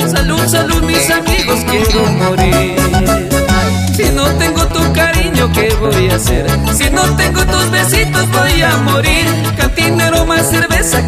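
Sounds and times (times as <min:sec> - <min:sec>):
latin dance music: 0:00.0 - 0:11.0.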